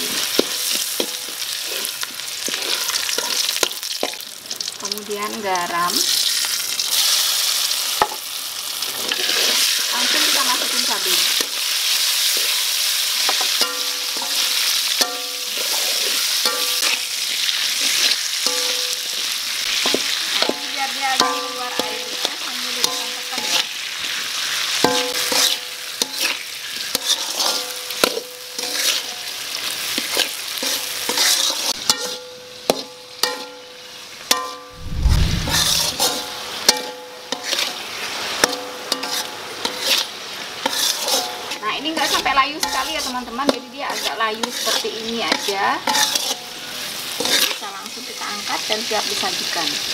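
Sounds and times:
metal spatula scraping a wok: 0.0 - 4.7, 9.0 - 33.6, 34.3 - 47.7
chili frying in hot oil: 0.0 - 49.9
low thump: 34.8 - 36.1.

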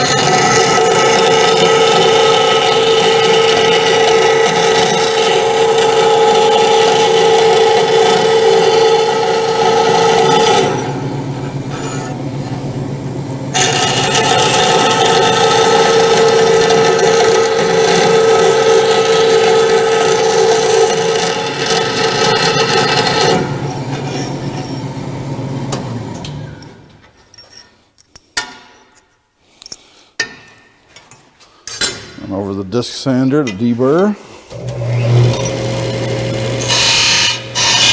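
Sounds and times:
bandsaw cutting metal: 0.0 - 12.6, 13.5 - 25.0, 34.5 - 37.9.

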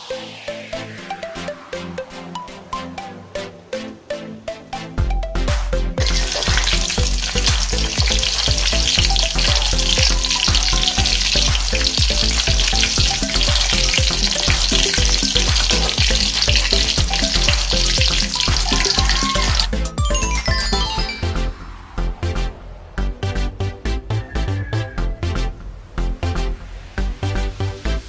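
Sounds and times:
background music with beat: 0.0 - 28.0
food sizzling in hot oil: 6.0 - 19.7.

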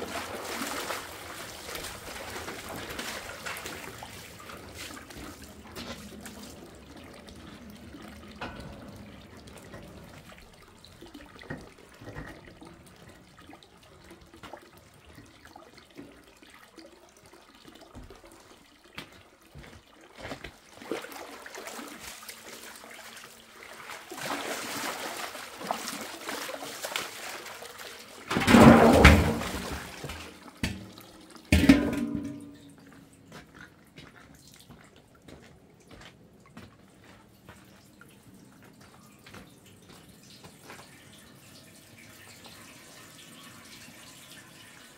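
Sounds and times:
loud water splashes: 0.0 - 11.5, 20.8 - 32.6
water trickling and splashing: 0.0 - 44.9.

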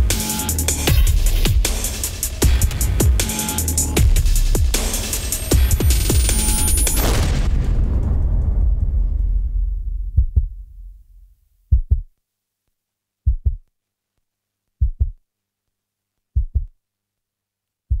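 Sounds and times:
low music: 0.0 - 6.4
heartbeat thumps: 8.9 - 12.1, 13.3 - 13.7, 14.8 - 15.2, 16.4 - 16.7.

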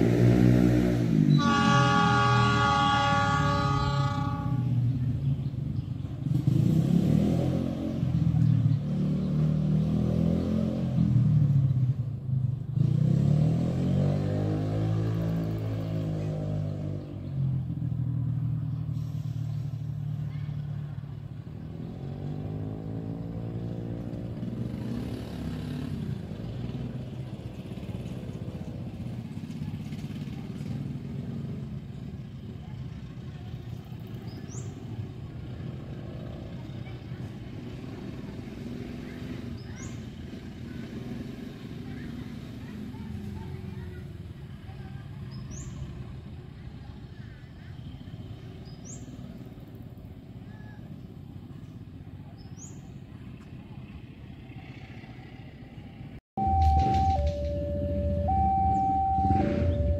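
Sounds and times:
train horn: 1.3 - 4.8
train rumbling on rails: 56.4 - 59.9.

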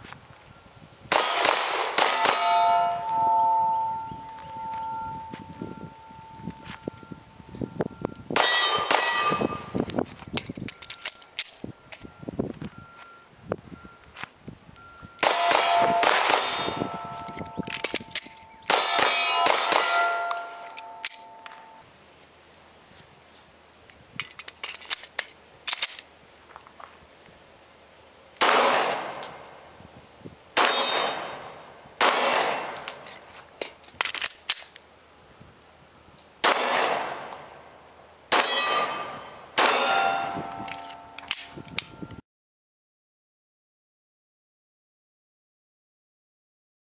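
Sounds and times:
pistol shots: 1.1 - 3.5, 8.4 - 9.7, 15.2 - 21.3, 28.4 - 29.6, 30.6 - 33.0, 36.4 - 37.4, 38.3 - 41.5
steel plates ringing: 1.1 - 6.6, 8.4 - 9.8, 15.2 - 21.8, 30.6 - 32.5, 38.3 - 42.2.

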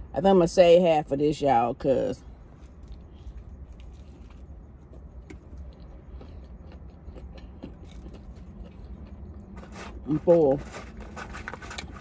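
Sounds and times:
low rumble inside car: 0.0 - 12.0
person chewing sandwich: 2.2 - 10.0.

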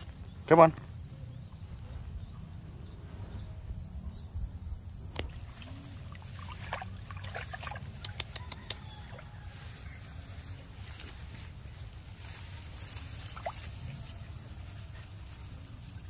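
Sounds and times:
water trickling: 5.3 - 8.1.

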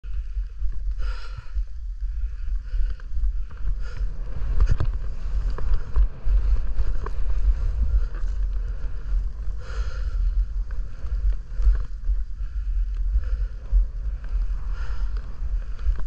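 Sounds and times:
wind buffeting microphone: 0.0 - 16.0
snowboard scraping over snow: 3.6 - 12.4.

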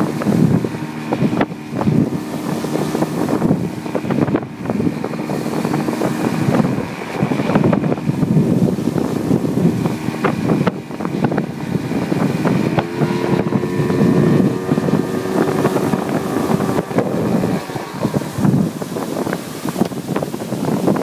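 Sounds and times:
churning wake: 0.0 - 21.0
outboard motor running: 0.0 - 21.0
wind buffeting microphone: 0.0 - 21.0.

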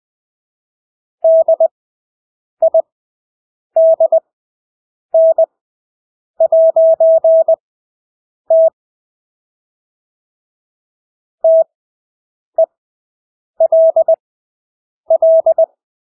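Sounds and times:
morse code beeps: 1.2 - 1.7, 3.8 - 4.2, 5.2 - 5.5, 6.4 - 7.6, 8.5 - 8.8, 11.4 - 11.7, 13.6 - 14.2, 15.1 - 15.7.

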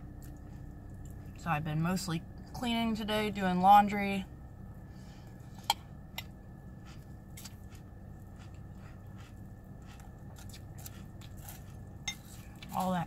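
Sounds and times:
steady low hum: 0.0 - 13.0
chewing cereal: 6.8 - 13.0.

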